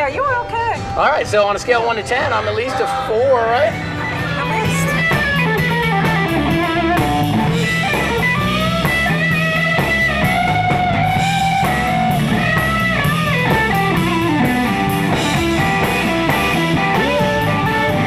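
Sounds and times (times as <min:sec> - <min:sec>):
electric guitar lead: 0:00.0 - 0:18.0
steady drum beat: 0:03.6 - 0:18.0.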